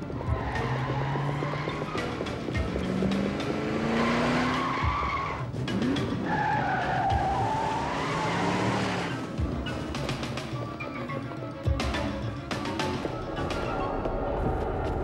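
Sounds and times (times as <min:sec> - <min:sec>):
van engine revving: 0:00.0 - 0:09.5
tyres squealing: 0:00.1 - 0:10.0.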